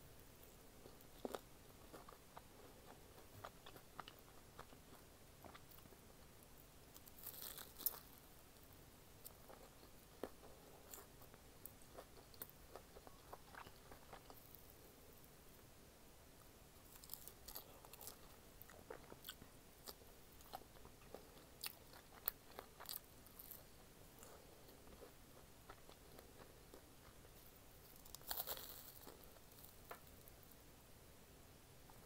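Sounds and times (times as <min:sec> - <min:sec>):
person chewing: 0:00.8 - 0:08.2, 0:09.2 - 0:14.8, 0:16.9 - 0:30.4.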